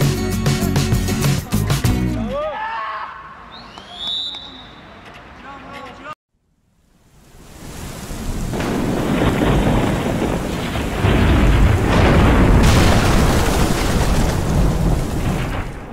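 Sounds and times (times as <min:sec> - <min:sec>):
thunder-like rumble: 0:08.1 - 0:15.9.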